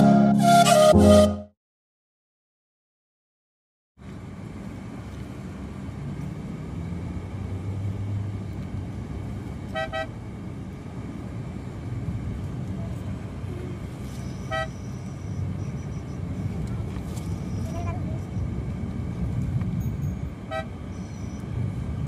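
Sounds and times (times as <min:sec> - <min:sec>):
car engine and road rumble: 0:04.0 - 0:22.0
car horn toots: 0:09.7 - 0:10.1, 0:14.2 - 0:15.0, 0:20.5 - 0:20.8.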